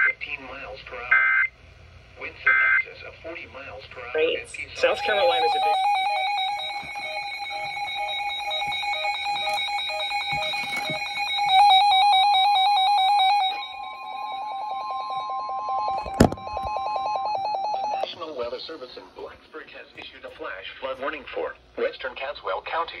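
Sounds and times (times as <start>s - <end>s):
pulsing electronic alarm beep: 4.8s - 18.0s
steady electronic tone: 4.8s - 18.0s.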